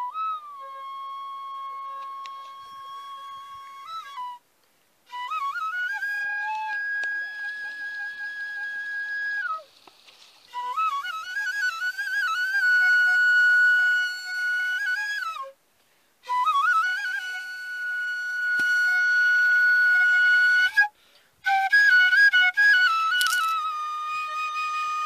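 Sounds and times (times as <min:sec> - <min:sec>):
bamboo flute melody: 0:00.0 - 0:15.6, 0:16.2 - 0:25.0.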